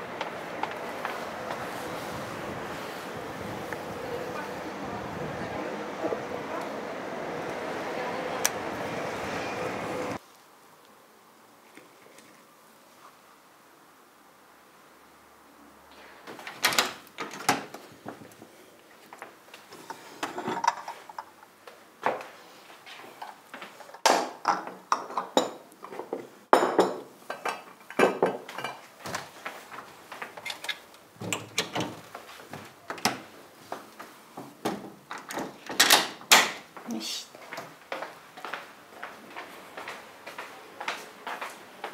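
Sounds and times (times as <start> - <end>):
crockery and cutlery clinking: 19.8 - 21.3.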